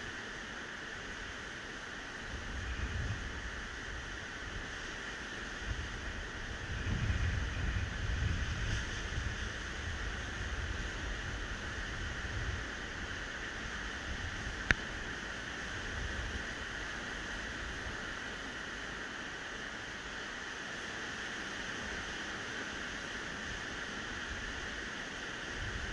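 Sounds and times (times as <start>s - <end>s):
waves breaking on sandy shore: 0.0s - 25.9s
wind buffeting microphone: 2.3s - 4.8s, 5.4s - 18.0s.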